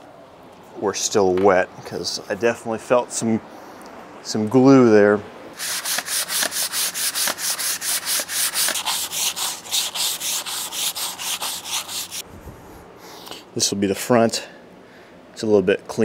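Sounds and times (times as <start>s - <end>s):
hand sanding wood: 5.6s - 12.2s.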